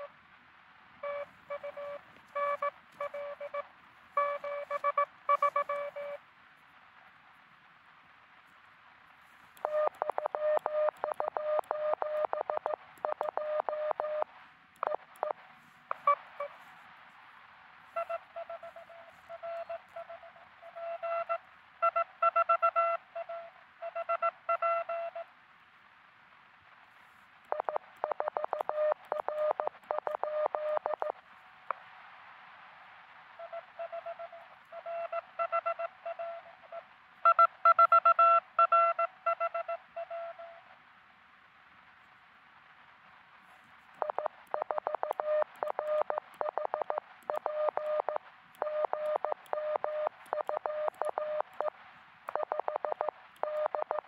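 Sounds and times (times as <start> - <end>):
radio receiver hiss: 0.0 - 7.5, 8.1 - 40.5
morse code tones: 1.0 - 3.6, 4.2 - 6.2, 9.6 - 14.2, 17.9 - 25.2, 27.5 - 31.1, 44.0 - 51.7, 52.3 - 54.0.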